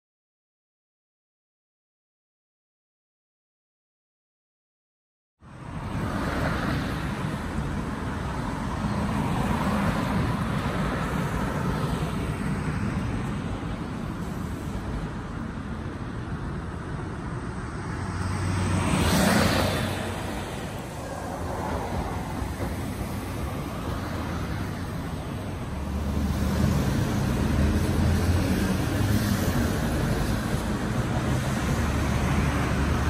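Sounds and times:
road traffic: 5.4 - 33.0
vehicle passing close: 18.0 - 33.0.

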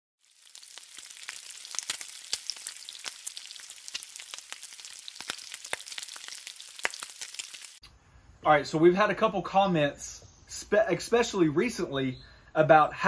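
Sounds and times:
food sizzling on griddle: 0.2 - 7.8
sharp pops and crackles: 0.2 - 7.9.

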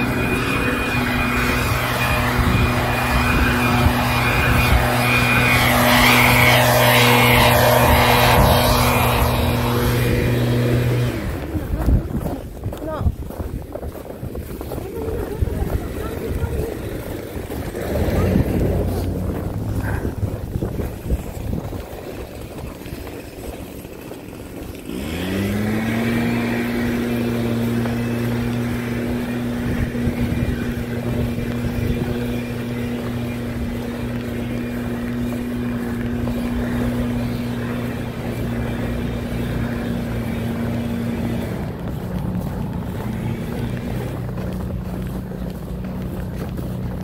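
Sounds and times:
engine starting and running: 14.8 - 47.0.

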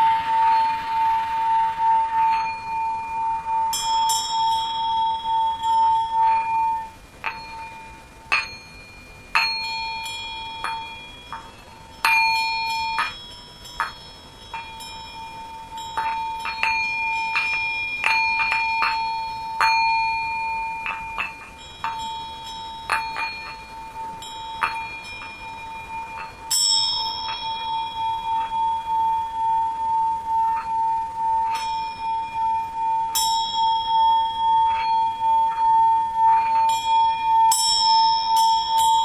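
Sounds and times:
singing bowls ringing: 0.0 - 39.0.

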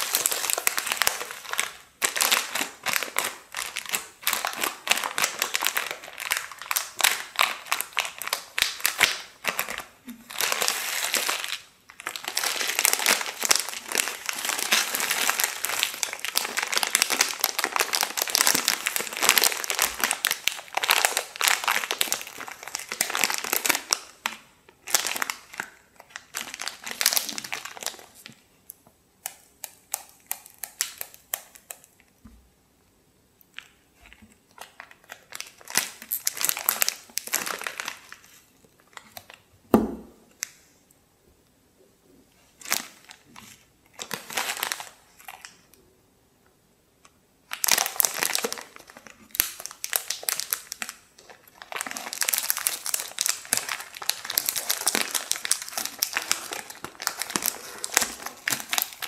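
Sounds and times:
dry noodles crackling: 0.0 - 28.3, 47.5 - 59.0
plastic wrapper crinkling: 0.0 - 28.4, 29.2 - 32.1, 33.5 - 40.6, 42.5 - 45.8, 47.4 - 59.0.

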